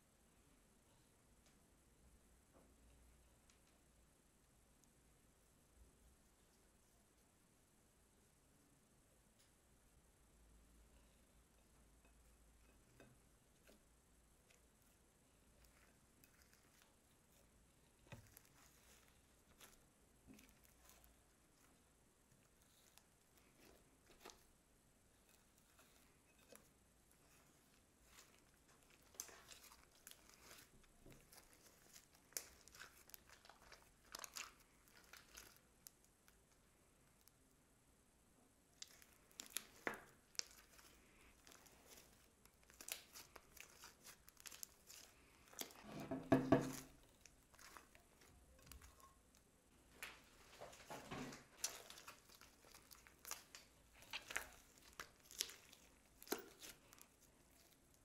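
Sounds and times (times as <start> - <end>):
slime clicking and crackling: 14.4 - 24.5, 25.2 - 37.4, 38.7 - 58.0
slime popping: 25.2 - 36.4, 38.8 - 49.4, 51.3 - 58.0.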